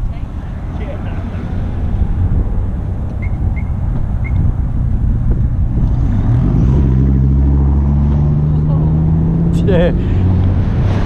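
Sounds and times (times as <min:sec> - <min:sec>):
short high chirps: 0:03.2 - 0:04.4.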